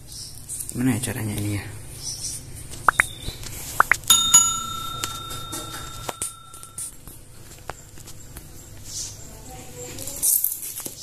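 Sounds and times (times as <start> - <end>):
bright bell ding: 4.1 - 7.0.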